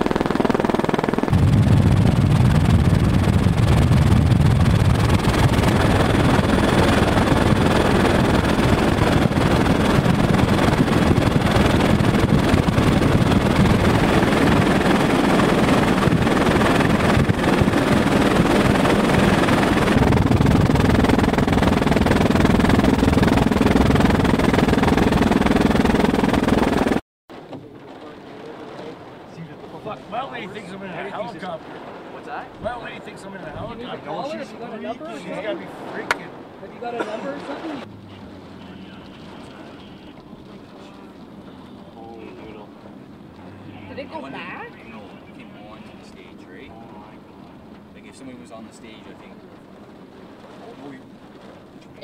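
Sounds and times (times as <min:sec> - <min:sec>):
helicopter rotor and engine: 0:00.0 - 0:27.0, 0:30.1 - 0:31.5, 0:43.8 - 0:49.4.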